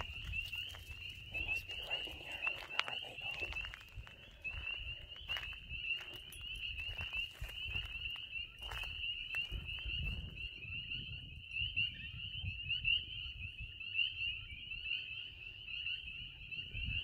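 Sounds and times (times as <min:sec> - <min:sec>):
walking and handling noise: 0:00.0 - 0:10.2
frogs peeping: 0:00.0 - 0:17.0.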